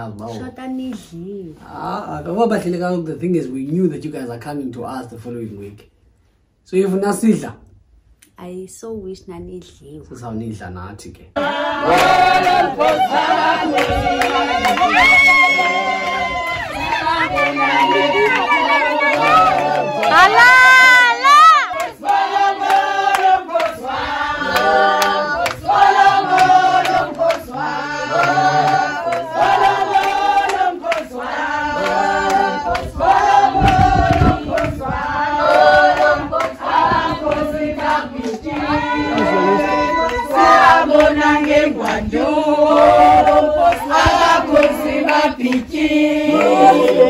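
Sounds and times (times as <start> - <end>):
women and men singing together: 11.4 - 47.0.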